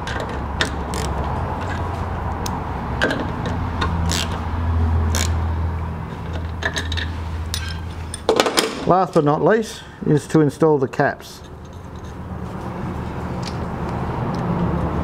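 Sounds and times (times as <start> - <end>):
spanner metallic clicks: 5.1 - 5.4.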